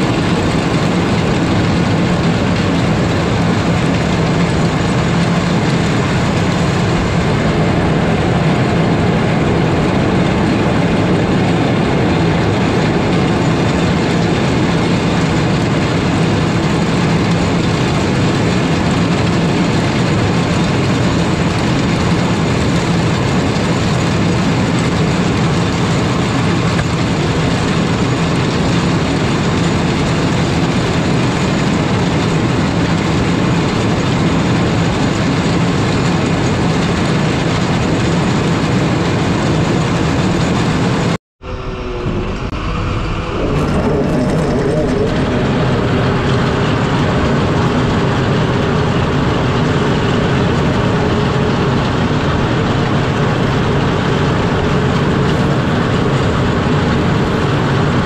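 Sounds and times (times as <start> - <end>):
diesel engine working: 0.0 - 58.0.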